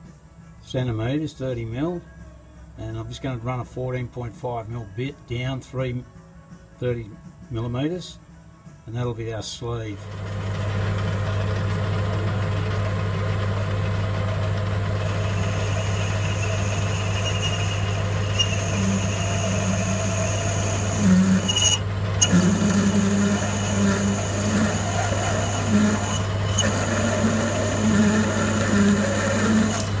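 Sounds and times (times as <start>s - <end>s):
metal lathe running: 10.0s - 30.0s
drill cutting whine and chatter: 14.9s - 30.0s.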